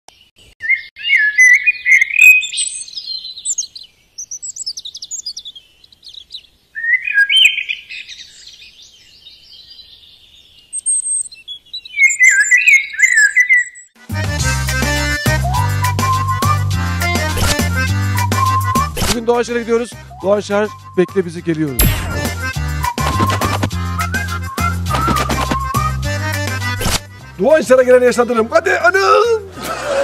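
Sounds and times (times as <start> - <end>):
songbirds singing: 0.1 - 14.0.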